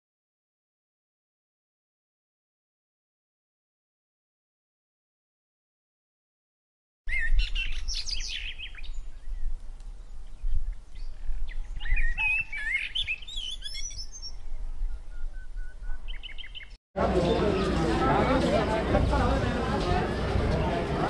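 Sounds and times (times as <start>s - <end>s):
small birds chirping and whistling: 7.1s - 9.6s, 10.2s - 16.8s.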